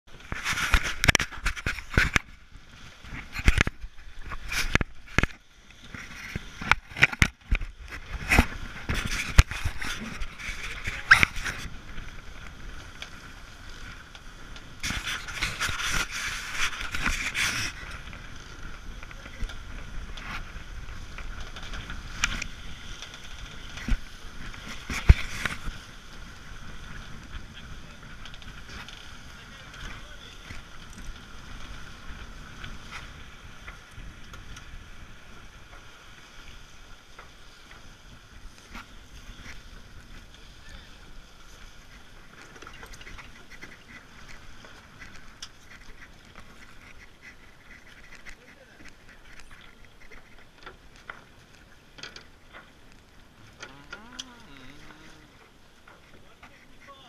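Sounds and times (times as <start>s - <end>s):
wind and water rushing: 0.1s - 57.0s
camera being handled and bumped: 0.2s - 2.3s, 3.2s - 5.4s, 6.0s - 11.6s.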